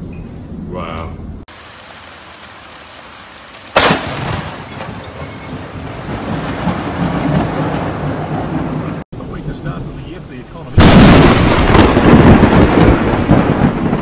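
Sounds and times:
steady rain: 0:01.4 - 0:14.0
loud thunderclap and rumble: 0:03.8 - 0:10.0, 0:10.7 - 0:14.0.

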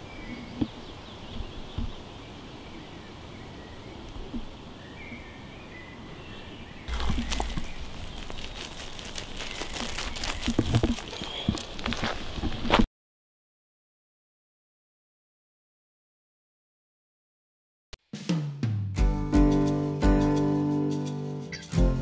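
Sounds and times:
footsteps crunching on gravel: 0:06.9 - 0:12.9.

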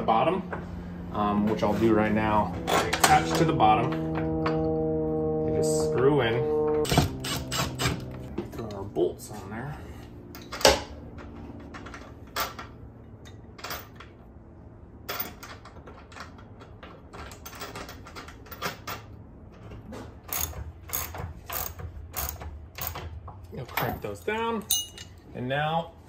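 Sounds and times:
wrenches clicking on nut and bolt: 0:20.3 - 0:23.1.

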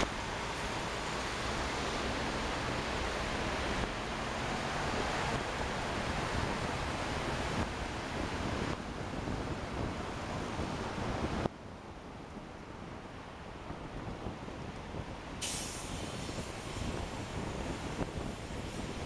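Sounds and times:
tyre hiss on road: 0:15.3 - 0:19.0.

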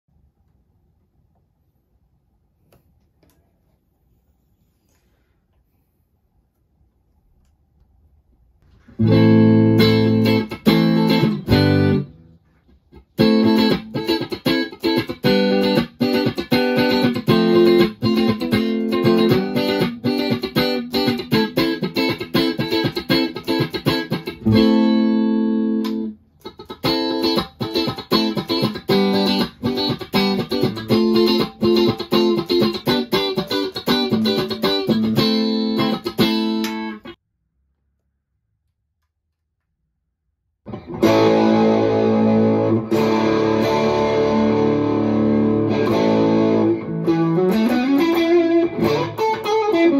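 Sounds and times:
clean electric guitar: 0:08.6 - 0:37.2, 0:40.7 - 0:49.9.

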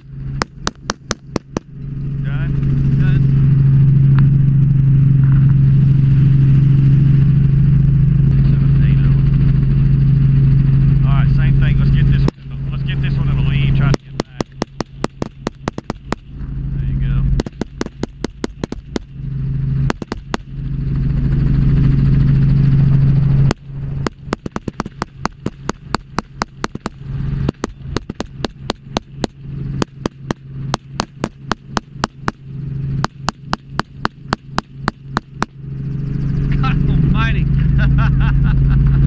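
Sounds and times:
helicopter engine and rotor drone: 0:00.0 - 0:39.0
rapid rifle fire: 0:00.4 - 0:01.7, 0:13.9 - 0:16.3, 0:17.4 - 0:19.2, 0:19.8 - 0:20.6, 0:23.4 - 0:35.6.

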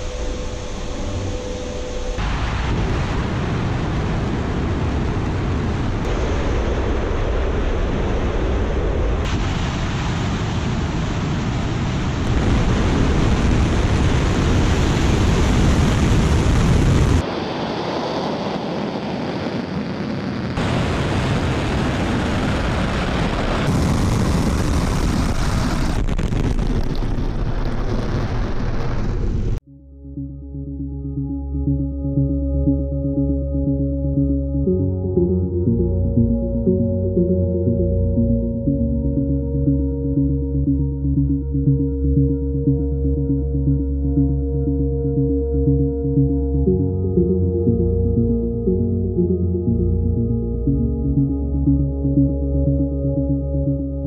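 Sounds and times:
rocket engines rumbling: 0:00.0 - 0:29.6.

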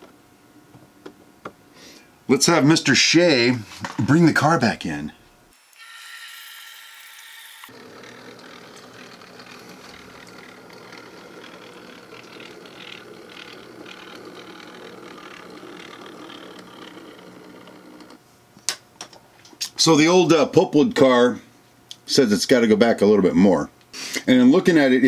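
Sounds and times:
small electric motor whirring: 0:05.5 - 0:18.2
wheels clicking on rails: 0:07.7 - 0:18.2.

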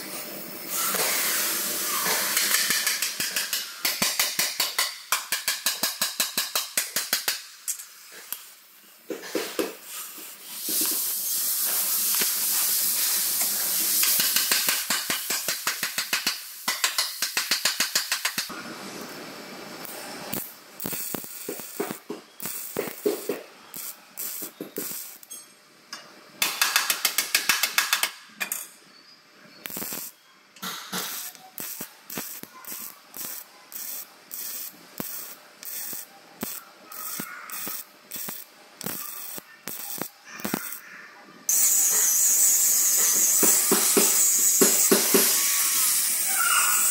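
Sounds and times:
welding arc crackling buzz: 0:10.8 - 0:25.4, 0:29.6 - 0:40.8, 0:41.5 - 0:46.9.

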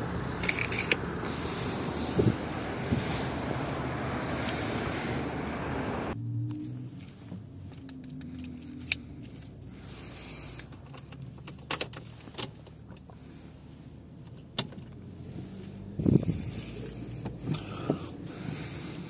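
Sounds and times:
car keys jangling: 0:07.0 - 0:09.8, 0:10.5 - 0:13.1.

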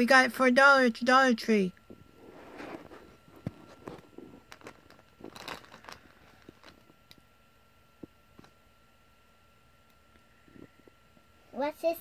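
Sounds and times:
plastic crinkling and clicking: 0:03.4 - 0:07.2.

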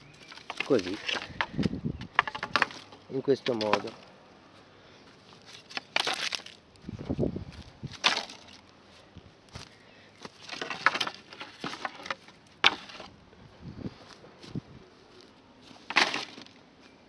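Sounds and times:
dry sticks clattering: 0:00.0 - 0:04.1, 0:05.2 - 0:06.6, 0:07.9 - 0:08.7, 0:09.5 - 0:13.1, 0:15.7 - 0:16.6.

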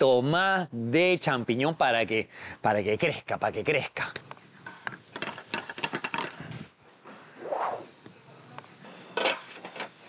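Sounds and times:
short whoosh: 0:07.2 - 0:07.9.

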